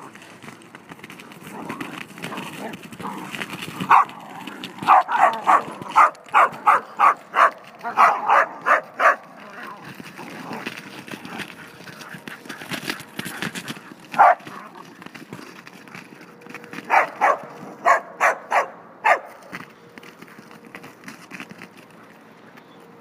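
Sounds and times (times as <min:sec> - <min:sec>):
dog barking: 0:03.9 - 0:04.2, 0:04.8 - 0:09.3, 0:14.2 - 0:14.4, 0:16.9 - 0:19.4.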